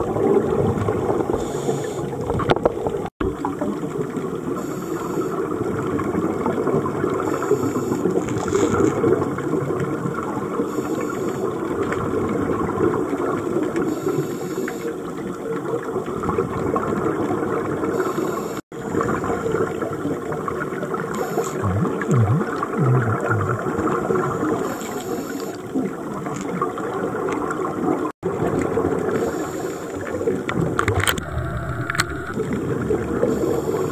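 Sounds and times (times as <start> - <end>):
exhaled air bubbling underwater: 0.0 - 33.9
scuba regulator hiss: 1.4 - 2.1, 4.6 - 5.4, 7.3 - 8.0, 13.9 - 14.9, 18.0 - 18.6, 24.6 - 25.6, 29.2 - 30.0, 33.3 - 33.9.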